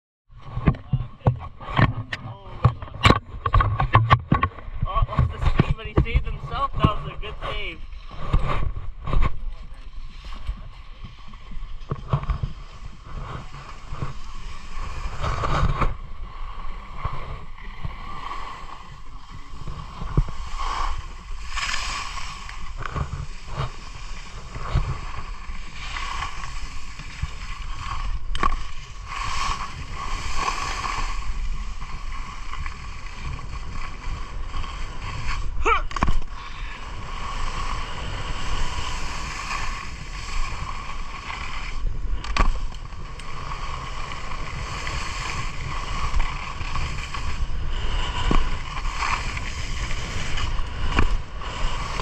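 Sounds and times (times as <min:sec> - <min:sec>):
wind on microphone: 0:00.3 - 0:52.0
skis scraping on snow: 0:03.5 - 0:52.0.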